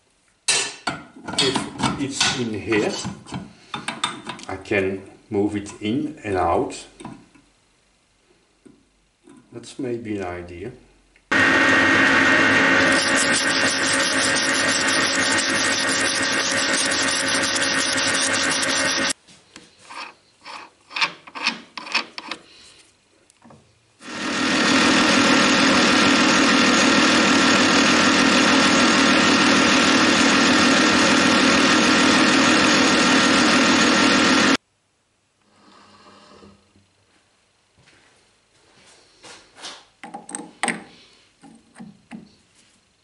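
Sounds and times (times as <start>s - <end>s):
metal lathe running: 11.3s - 19.2s, 24.0s - 34.6s
wire brush rasping on threads: 12.8s - 19.2s.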